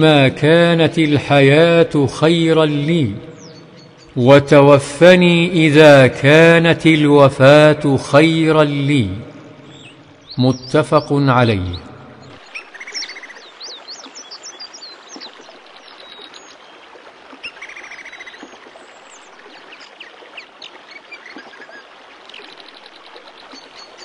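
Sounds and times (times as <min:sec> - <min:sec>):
birds chirping and singing: 0:00.0 - 0:05.4, 0:08.3 - 0:16.6
running water rushing: 0:00.0 - 0:24.0.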